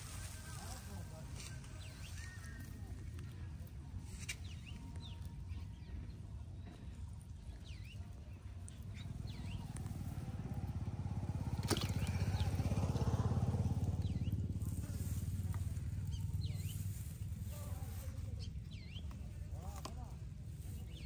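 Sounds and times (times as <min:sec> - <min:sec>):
small engine running: 0:08.8 - 0:18.3.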